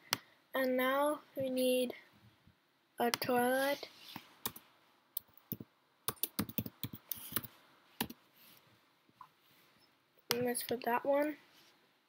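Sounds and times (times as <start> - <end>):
keyboard typing: 5.2 - 8.2.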